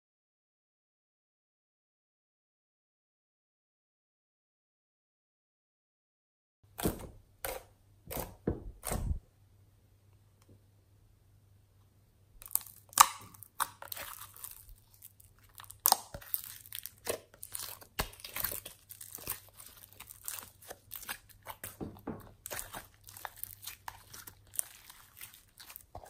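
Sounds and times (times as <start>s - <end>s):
sticky slime clicks and crackles: 12.4s - 21.8s.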